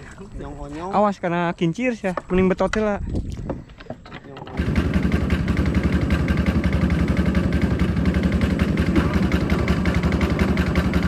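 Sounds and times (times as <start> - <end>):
boat engine running steadily: 4.4 - 11.0.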